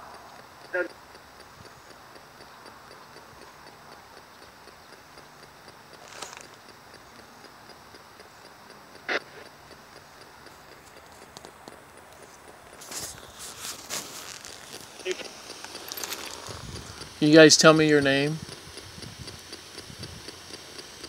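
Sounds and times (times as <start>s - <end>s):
radio static hiss: 0.0s - 4.0s, 4.6s - 21.0s
rapid regular ticking: 0.0s - 21.0s.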